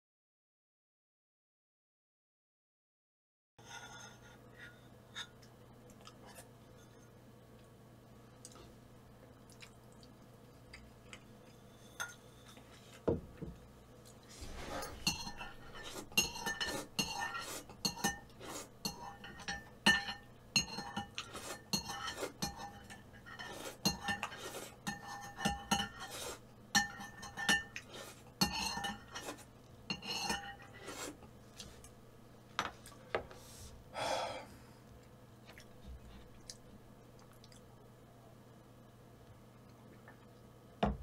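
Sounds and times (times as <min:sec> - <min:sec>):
spoon clinking against bowl: 0:15.0 - 0:18.2, 0:18.8 - 0:21.1, 0:26.7 - 0:27.8.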